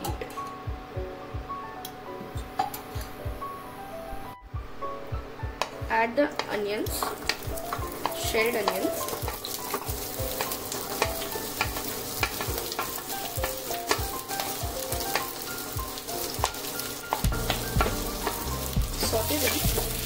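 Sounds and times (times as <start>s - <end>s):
spatula clicking and tapping: 5.6s - 20.0s
onions sizzling in hot oil: 6.5s - 20.0s.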